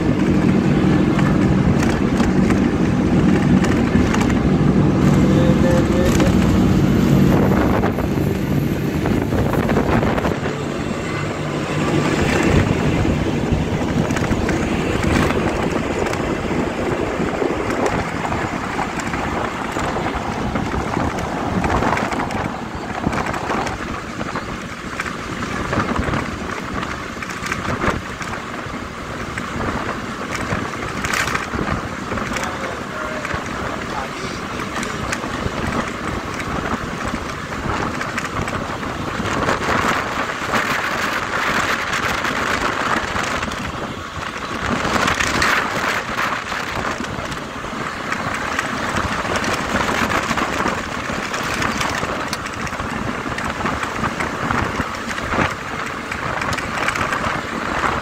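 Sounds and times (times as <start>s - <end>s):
bus engine running: 0.0s - 58.0s
road and wind noise: 0.0s - 58.0s.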